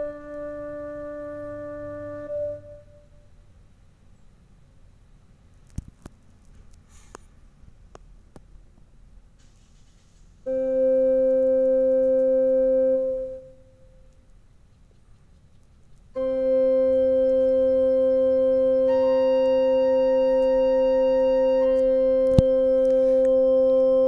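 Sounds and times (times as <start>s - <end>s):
higher keyboard note: 0.0s - 3.1s, 10.5s - 13.8s, 16.2s - 24.0s
keyboard sustained note: 0.0s - 3.3s, 10.5s - 14.1s, 16.2s - 24.0s.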